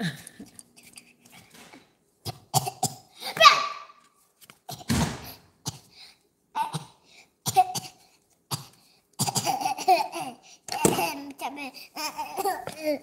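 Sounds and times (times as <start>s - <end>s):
child coughing: 2.3s - 3.9s, 6.6s - 13.0s.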